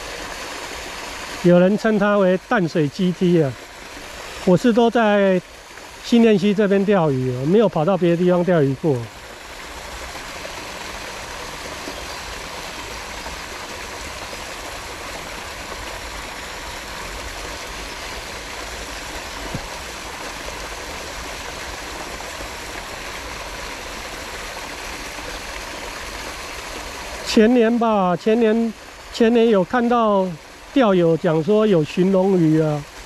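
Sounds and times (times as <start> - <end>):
flowing water rushing: 0.0 - 33.0.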